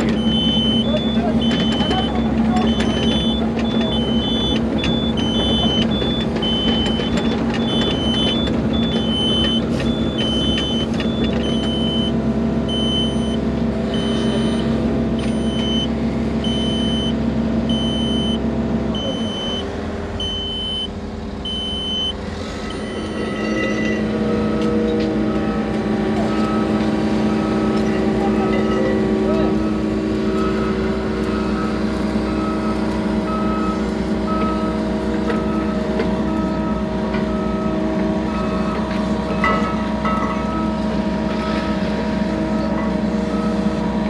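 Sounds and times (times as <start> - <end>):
excavator diesel engine: 0.0 - 44.0
lower-pitched repeating beep: 0.2 - 13.4, 14.0 - 18.4, 19.0 - 20.9
high warning beeps: 0.2 - 18.4, 19.0 - 20.9, 21.5 - 24.6.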